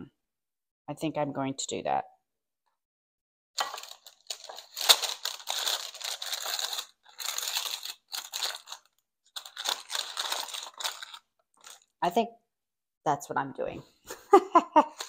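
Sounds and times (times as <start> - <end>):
parchment paper crinkling: 3.6 - 12.0.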